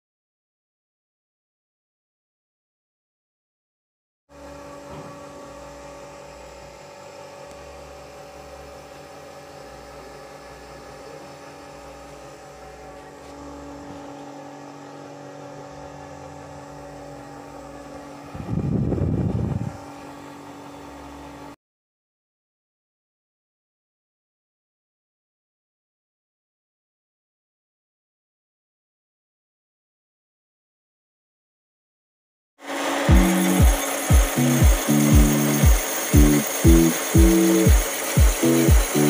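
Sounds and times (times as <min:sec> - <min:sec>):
mechanical hum with held tones: 0:04.3 - 0:21.6, 0:32.6 - 0:39.0
low pulsing: 0:18.3 - 0:20.0, 0:33.1 - 0:39.0.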